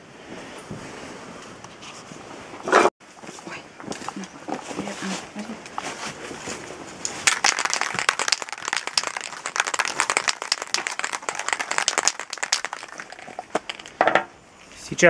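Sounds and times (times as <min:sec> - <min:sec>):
spray paint can rattling: 0:07.1 - 0:14.0.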